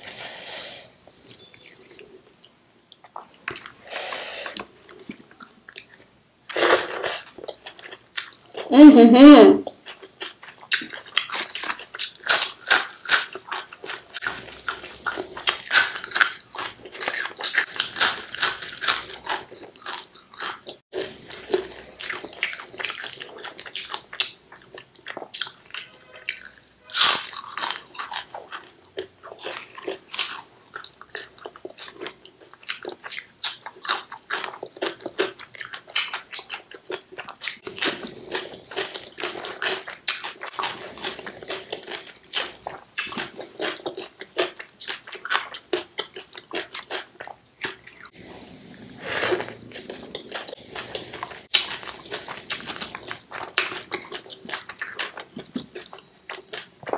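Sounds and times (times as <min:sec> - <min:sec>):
soft chewing: 0:00.9 - 0:03.8, 0:27.4 - 0:56.9
crunching crisp food: 0:09.7 - 0:56.9.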